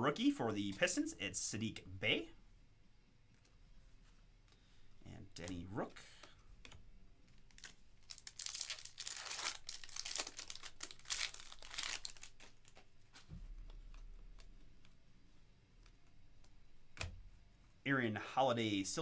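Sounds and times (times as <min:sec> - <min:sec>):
foil wrapper tearing and crinkling: 0:07.5 - 0:12.8.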